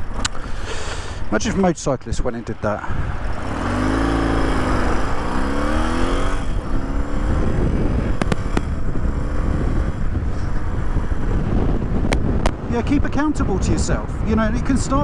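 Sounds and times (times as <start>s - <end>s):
wind rush: 2.2s - 15.0s
motorcycle engine accelerating: 2.9s - 14.4s.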